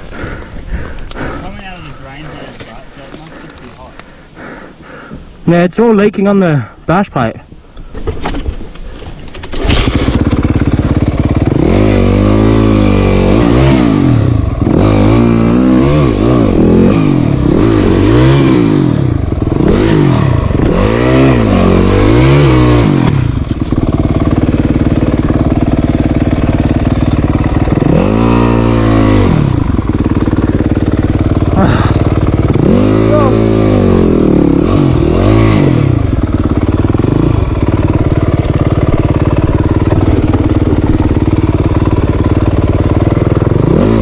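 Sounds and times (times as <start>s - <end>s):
dirt bike engine revving: 9.5s - 44.0s.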